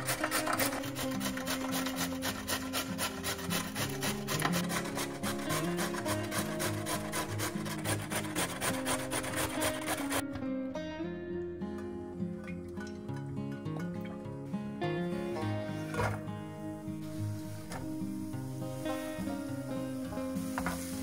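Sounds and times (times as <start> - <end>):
vegetable grating on a grater: 0.0 - 10.2.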